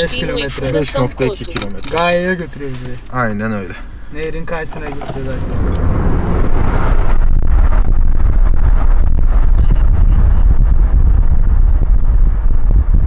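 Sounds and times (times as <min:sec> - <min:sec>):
car road noise from inside: 0:00.0 - 0:13.0
wind buffeting microphone: 0:04.8 - 0:13.0.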